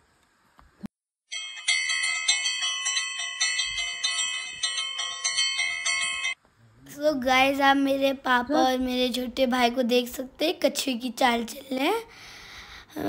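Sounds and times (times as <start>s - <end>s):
temple bells ringing: 1.3s - 6.4s.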